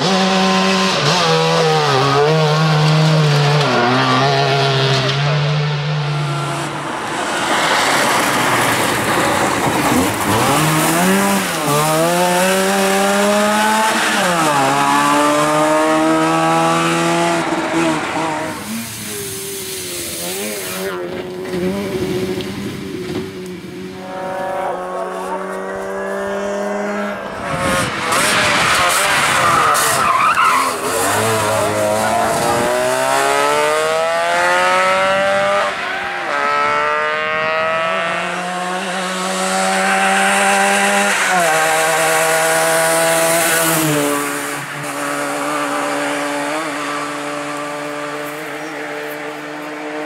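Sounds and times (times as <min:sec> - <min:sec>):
rally car engines revving: 0:00.0 - 0:50.0
loud rushing noise: 0:05.7 - 0:24.2.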